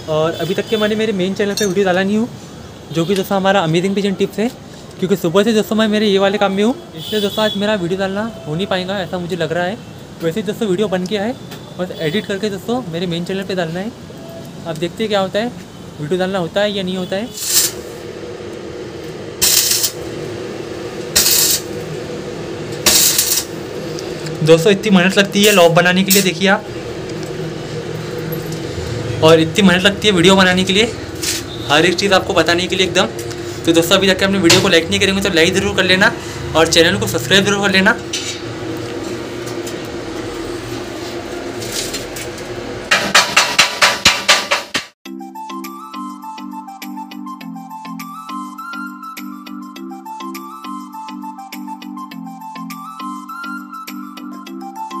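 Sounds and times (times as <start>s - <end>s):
harsh hissing bursts: 17.3s - 28.0s, 30.5s - 33.8s
steady low hum: 17.8s - 37.4s
metal-on-metal strikes: 19.4s - 20.0s, 21.1s - 21.7s, 22.8s - 23.6s, 34.5s - 34.9s, 42.9s - 44.9s.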